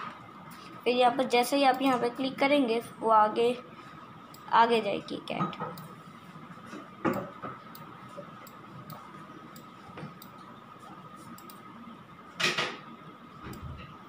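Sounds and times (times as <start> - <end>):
computer mouse clicks: 7.1 - 10.5, 11.3 - 11.7, 13.4 - 13.7.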